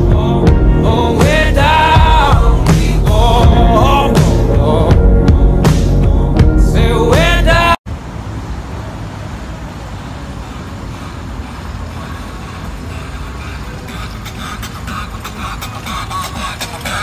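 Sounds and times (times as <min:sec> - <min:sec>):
music: 0:00.0 - 0:07.8, 0:13.4 - 0:17.0
road traffic rumble: 0:00.0 - 0:17.0.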